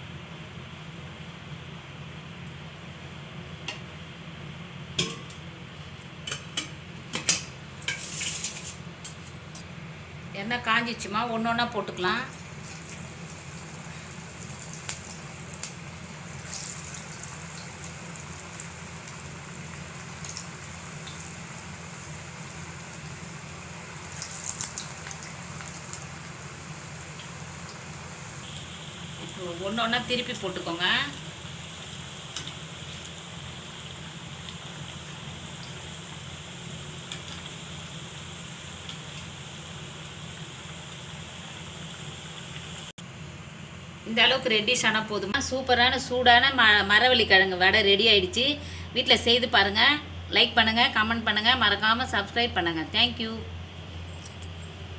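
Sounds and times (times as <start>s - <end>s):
deep-frying sizzle: 0.0s - 10.0s, 10.6s - 46.8s
hot oil popping: 4.9s - 9.3s, 12.1s - 42.9s.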